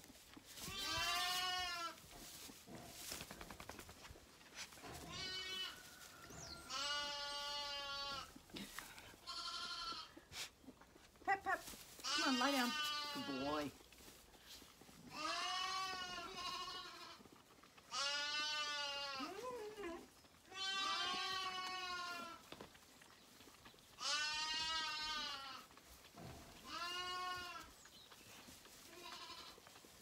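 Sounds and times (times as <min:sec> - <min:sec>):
lambs bleating: 0:00.6 - 0:02.0, 0:05.0 - 0:05.8, 0:06.6 - 0:08.4, 0:09.2 - 0:10.2, 0:12.0 - 0:13.7, 0:15.1 - 0:19.6, 0:20.5 - 0:22.5, 0:24.0 - 0:25.7, 0:26.6 - 0:27.8, 0:28.8 - 0:29.6.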